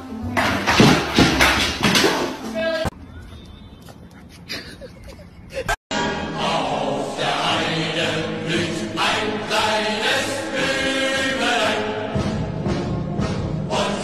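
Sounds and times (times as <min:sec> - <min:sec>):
choir chanting: 0:05.9 - 0:12.6, 0:13.2 - 0:14.0.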